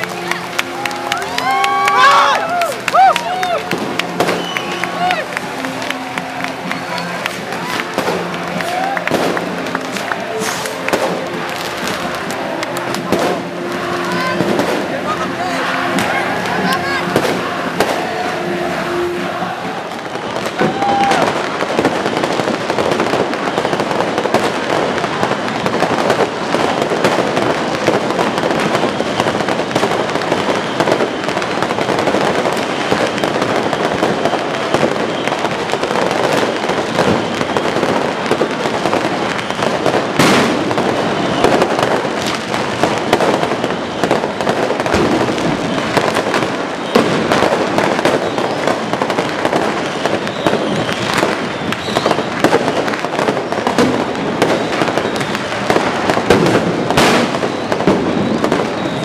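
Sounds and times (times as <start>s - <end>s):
fireworks crackling and popping: 0.0s - 59.0s
firework bang: 3.7s - 4.6s, 20.1s - 59.0s.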